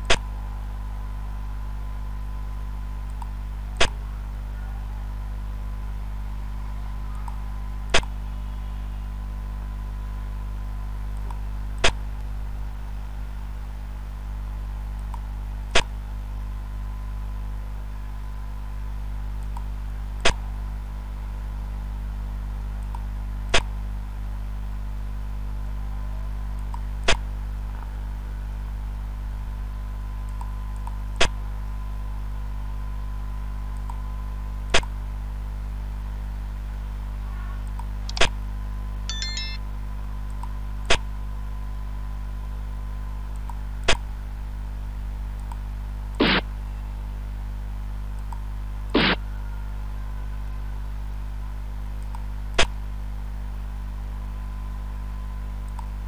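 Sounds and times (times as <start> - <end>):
steady low hum: 0.0 - 56.0
piece-move click sound effect: 39.1 - 39.6.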